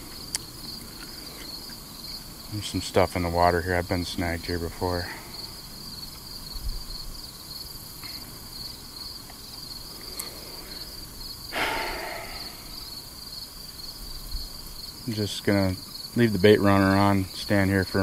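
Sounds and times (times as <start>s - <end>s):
insects singing in chorus: 0.0s - 18.0s
noisy whoosh: 11.6s - 13.0s.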